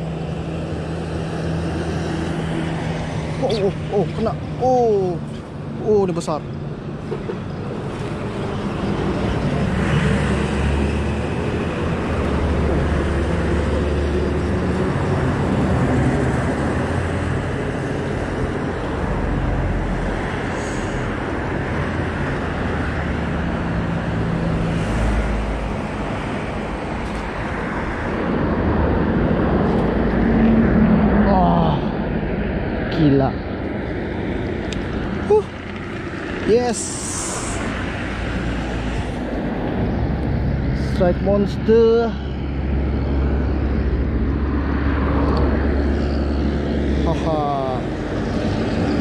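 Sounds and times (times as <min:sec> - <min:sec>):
road traffic passing: 0:00.0 - 0:49.0.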